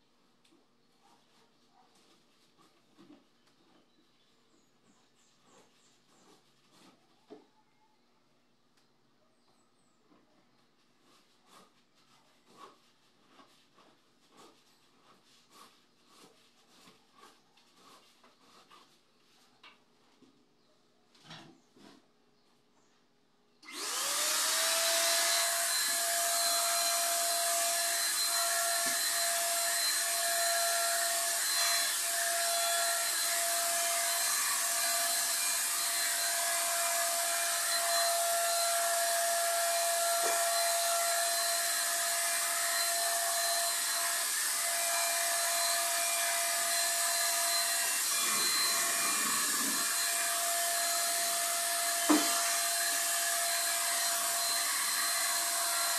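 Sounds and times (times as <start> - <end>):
paint sprayer motor whining: 23.6 - 55.9.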